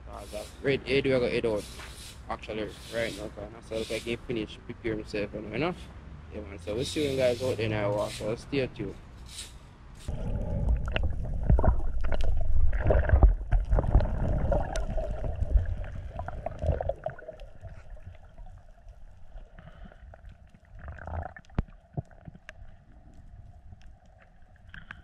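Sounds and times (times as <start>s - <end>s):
underwater rumble and gurgle: 10.1s - 25.0s
sharp clicks underwater: 10.2s - 25.0s.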